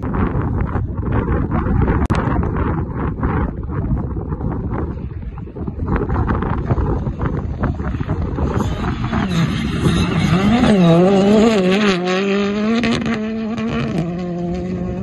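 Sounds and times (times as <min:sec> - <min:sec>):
rally car engine high revs: 0:08.5 - 0:15.0.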